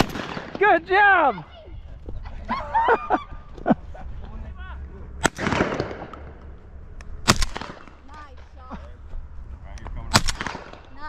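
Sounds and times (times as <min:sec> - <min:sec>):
shotgun shots: 0:00.0 - 0:00.7, 0:05.2 - 0:06.4, 0:07.2 - 0:08.0, 0:10.1 - 0:10.9.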